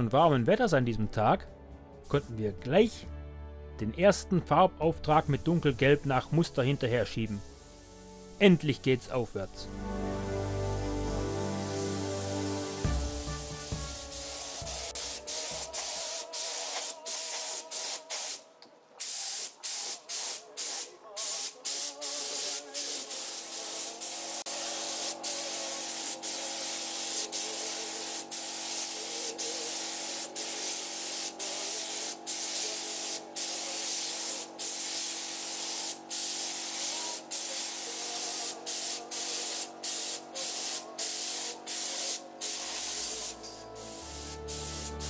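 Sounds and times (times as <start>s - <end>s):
paint spray hissing: 7.3s - 8.1s, 11.5s - 45.0s.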